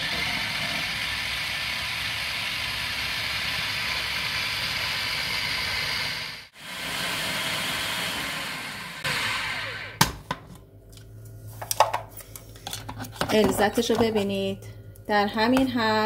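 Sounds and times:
food processor running: 0.0 - 10.2.

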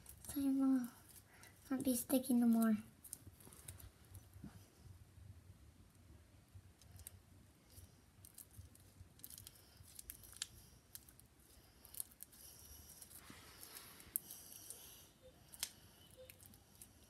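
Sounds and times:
slime clicking and crackling: 6.8 - 17.0.

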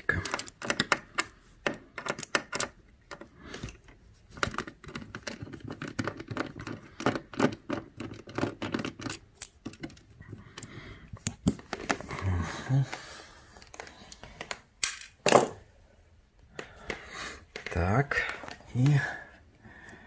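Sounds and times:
screwdriver clicking and scraping on metal: 0.0 - 12.0.

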